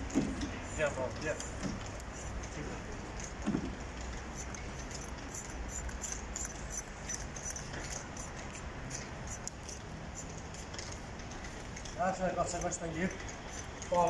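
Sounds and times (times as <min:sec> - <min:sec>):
outdoor background noise: 0:00.0 - 0:14.0
metal comb clicking through fur: 0:04.3 - 0:11.6, 0:12.4 - 0:14.0.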